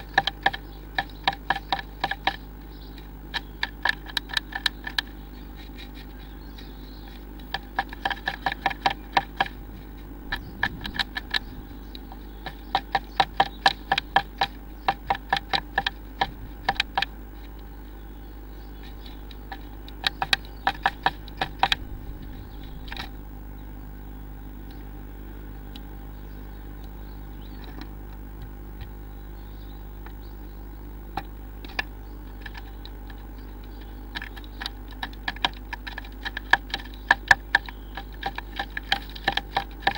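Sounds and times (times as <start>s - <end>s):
bird pecking on wood: 0.0s - 17.8s, 18.8s - 23.2s, 31.1s - 39.9s
steady low hum: 0.0s - 39.9s.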